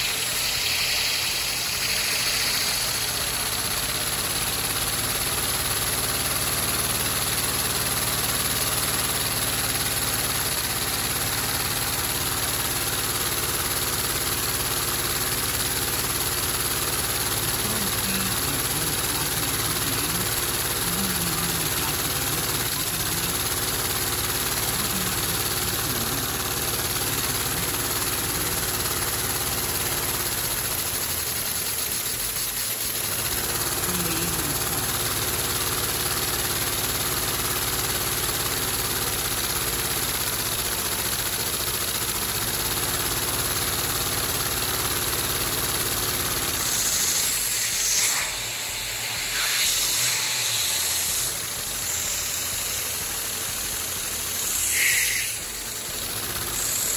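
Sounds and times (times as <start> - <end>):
hissing rush of air: 0.0 - 4.0, 46.5 - 56.9
plastic engine fast patter: 0.0 - 48.0.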